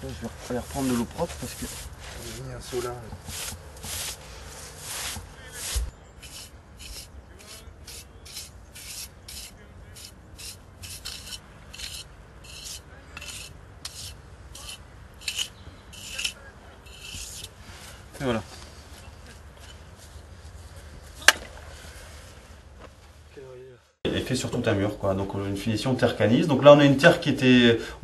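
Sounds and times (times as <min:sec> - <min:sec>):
tool scraping clay plaster: 0:03.1 - 0:17.6.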